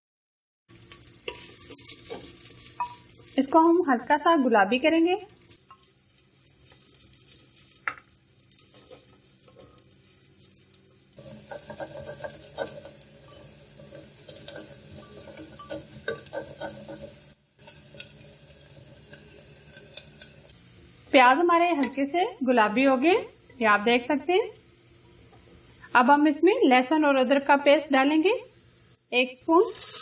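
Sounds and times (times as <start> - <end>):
onion sizzling in hot fat: 0.7 - 30.0
wooden spoon scraping pot: 11.2 - 20.4.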